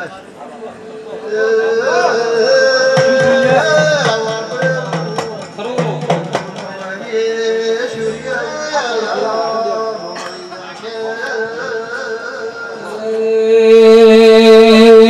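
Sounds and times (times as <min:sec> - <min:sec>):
quick drum strokes: 0:03.0 - 0:07.1.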